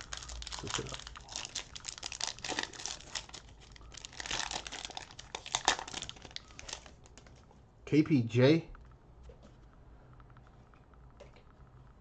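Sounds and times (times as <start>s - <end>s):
cellophane wrapper crinkling: 0.0s - 7.5s.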